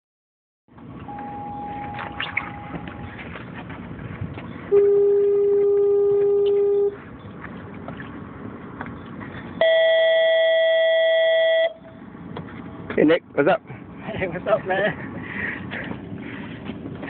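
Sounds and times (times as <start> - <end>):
steady horn-like tones: 4.7 - 7.0.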